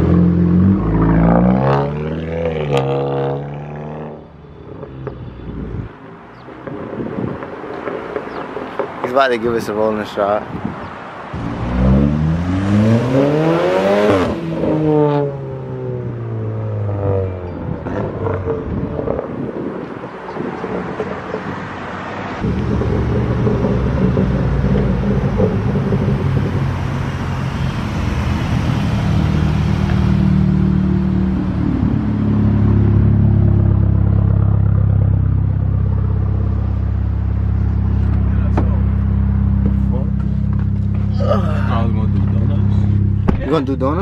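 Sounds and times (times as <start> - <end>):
car engine and exhaust: 0.0 - 44.0
steady low drone: 22.4 - 44.0.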